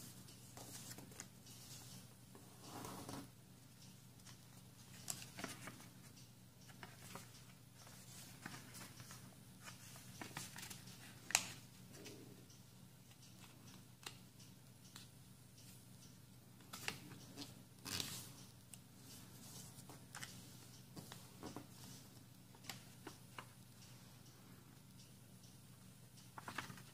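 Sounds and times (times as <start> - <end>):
paper rustling and creasing: 26.4 - 26.9.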